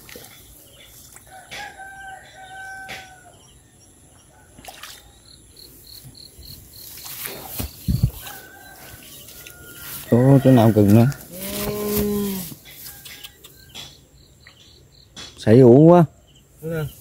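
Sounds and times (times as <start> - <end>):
rooster crowing: 1.3 - 3.4, 8.1 - 13.8.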